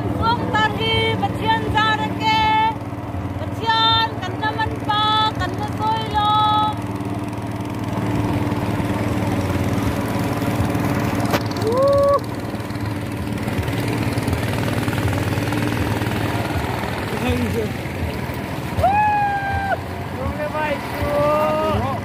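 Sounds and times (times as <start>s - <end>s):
motor boat engine running: 0.0s - 22.0s
brief rising call: 11.5s - 12.4s.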